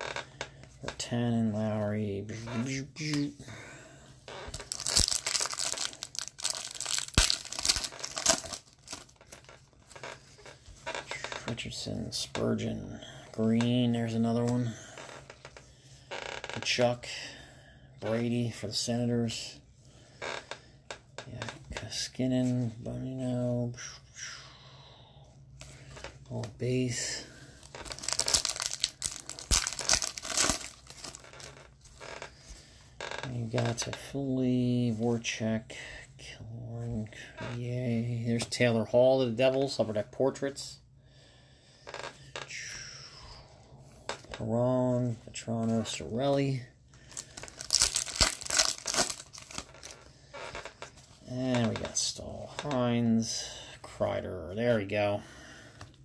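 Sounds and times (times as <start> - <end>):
foil wrapper crinkling and tearing: 4.3 - 10.2, 27.7 - 32.2, 47.1 - 50.8.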